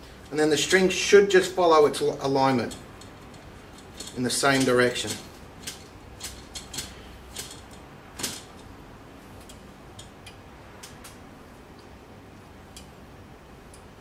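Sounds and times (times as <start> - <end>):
light irregular clicks: 9.4 - 13.0.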